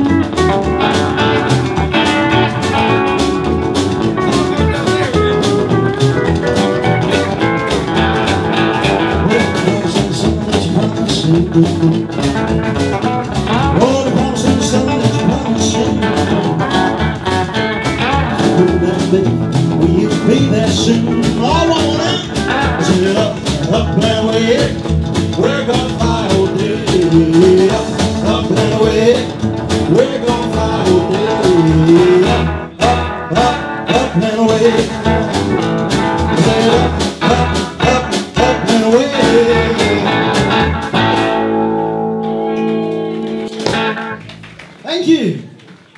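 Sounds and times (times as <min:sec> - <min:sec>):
lead guitar: 0:00.0 - 0:44.5
rockabilly band music: 0:00.0 - 0:45.9.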